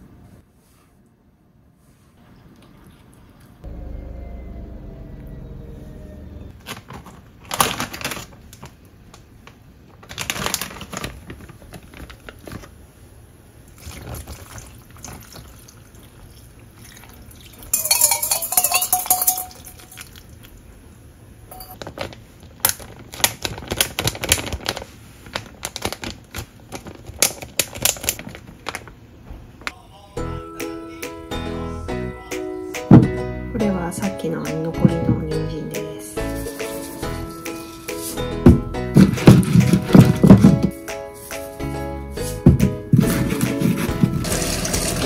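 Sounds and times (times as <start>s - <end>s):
plastic bag crinkling: 6.6s - 12.8s, 21.8s - 29.0s
liquid pouring into bag: 13.7s - 20.5s.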